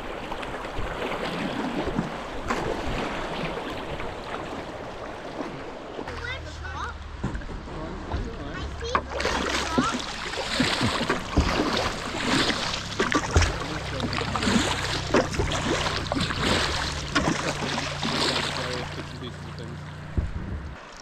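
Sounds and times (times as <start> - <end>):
paddle strokes splashing: 0.0 - 21.0
river current rushing over stones: 9.0 - 19.8.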